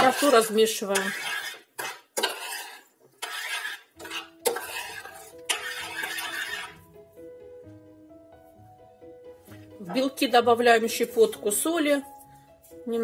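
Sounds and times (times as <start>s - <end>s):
faint background music: 0.0s - 1.6s, 2.2s - 13.0s
spoon scraping a saucepan: 0.0s - 6.8s.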